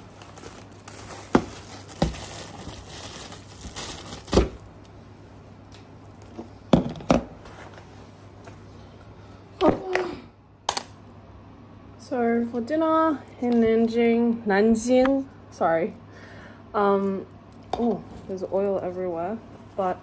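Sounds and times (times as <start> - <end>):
plastic bags rustling: 0.0 - 4.8.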